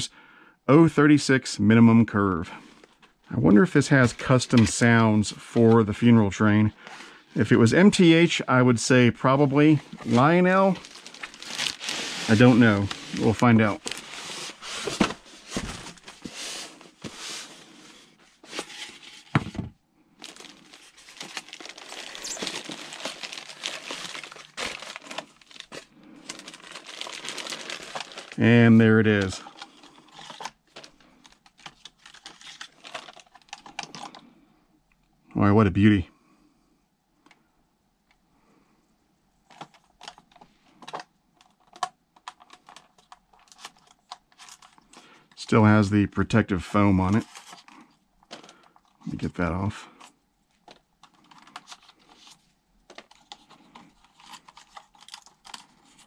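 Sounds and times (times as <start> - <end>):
plastic wrapping crinkling: 9.6 - 17.7, 20.2 - 34.2, 39.5 - 45.0, 47.2 - 49.2, 50.6 - 56.0
packaging knocks: 20.2 - 28.4.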